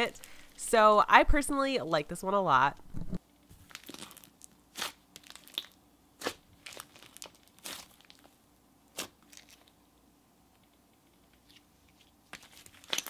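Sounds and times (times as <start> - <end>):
hands squishing slime: 3.7 - 8.3, 8.9 - 9.8, 12.3 - 13.0.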